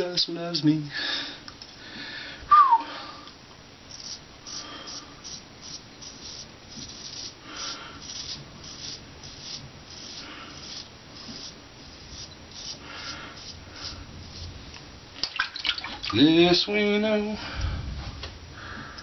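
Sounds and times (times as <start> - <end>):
razor scraping beard stubble: 3.9 - 14.5.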